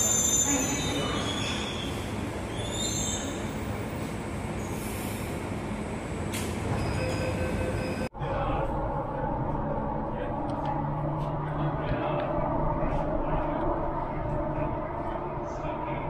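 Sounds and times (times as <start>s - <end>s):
train wheels squealing: 0.0s - 5.2s, 6.7s - 8.1s
train rumble: 0.0s - 16.0s.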